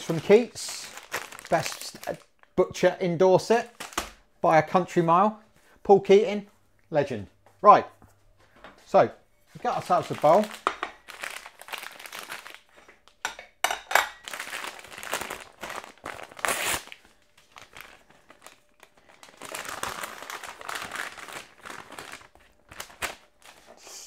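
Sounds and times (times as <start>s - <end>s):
paper crinkling and rustling: 0.0s - 2.3s, 3.6s - 4.2s, 9.6s - 13.2s, 14.2s - 23.8s.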